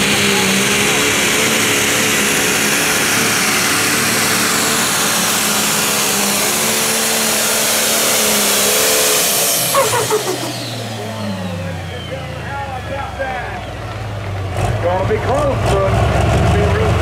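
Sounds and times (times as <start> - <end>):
diesel tractor engine under load: 0.0 - 17.0.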